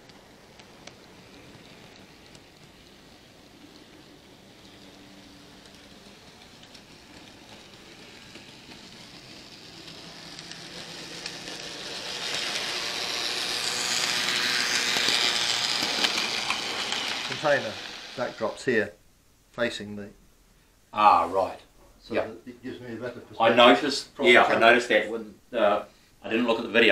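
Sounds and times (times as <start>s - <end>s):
faint motor whir: 0.0s - 18.6s
model train wheels rumbling: 0.0s - 18.8s
model train passing: 0.0s - 18.9s.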